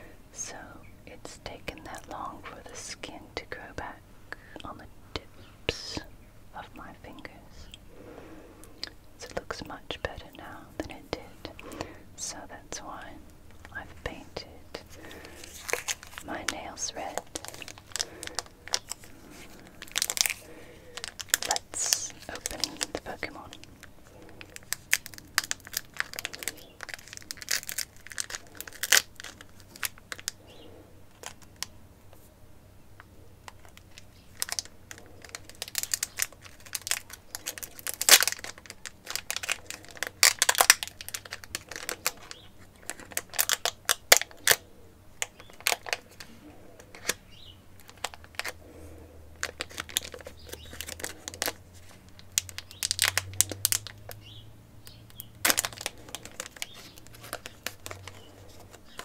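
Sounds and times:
foil wrapper crinkling: 0:10.8 - 0:32.3, 0:33.4 - 0:59.0.

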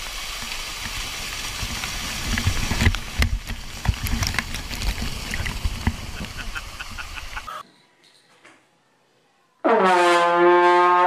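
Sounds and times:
pool water splashing: 0:00.0 - 0:07.6.

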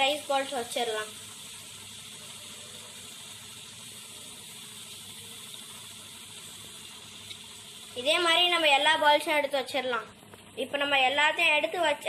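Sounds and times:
steamer hissing: 0:00.0 - 0:09.0
water boiling in a pot: 0:00.0 - 0:12.0.

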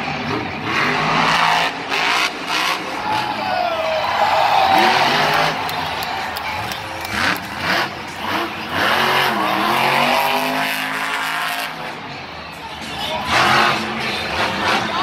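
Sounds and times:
monster truck engine revving: 0:00.0 - 0:15.0.

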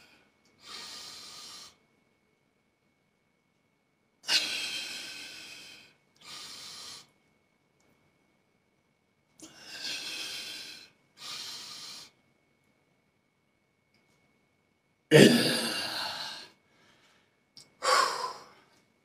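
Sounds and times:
man breathing hard: 0:00.6 - 0:01.8, 0:04.3 - 0:07.1, 0:09.4 - 0:12.2, 0:15.2 - 0:18.8.

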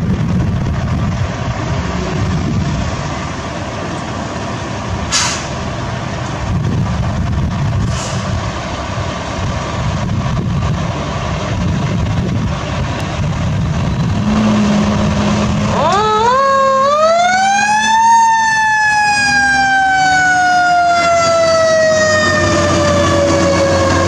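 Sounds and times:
diesel engine rumbling: 0:00.0 - 0:24.0.

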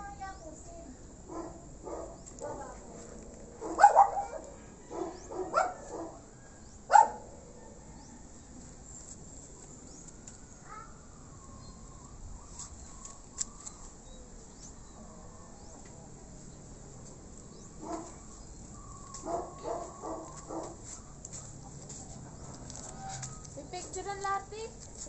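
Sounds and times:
dog barking: 0:01.3 - 0:02.9, 0:03.6 - 0:06.2, 0:06.9 - 0:07.3, 0:17.8 - 0:18.2, 0:19.2 - 0:20.8.

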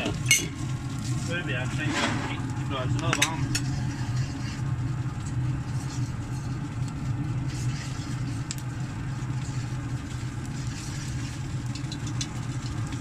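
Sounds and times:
clinks of cast-iron pans: 0:00.0 - 0:00.6, 0:03.0 - 0:03.6
grill fan humming: 0:00.0 - 0:13.0.

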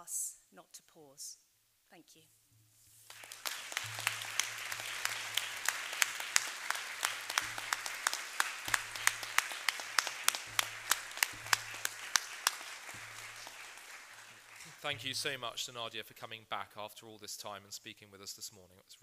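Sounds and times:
audience applauding: 0:03.1 - 0:15.9
sharp claps close by: 0:03.1 - 0:15.9.

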